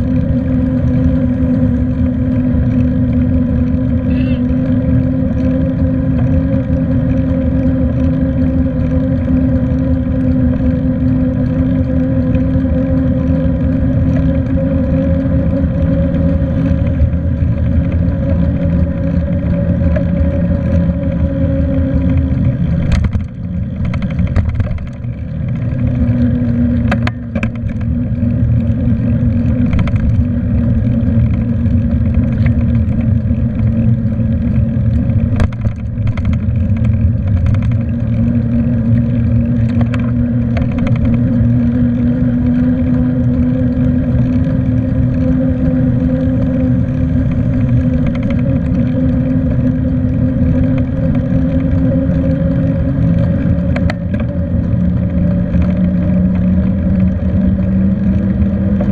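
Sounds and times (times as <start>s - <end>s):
bicycle riding hum: 0.0s - 58.9s
sharp knocks and rattles: 22.0s - 25.9s, 26.8s - 28.0s, 34.9s - 41.4s.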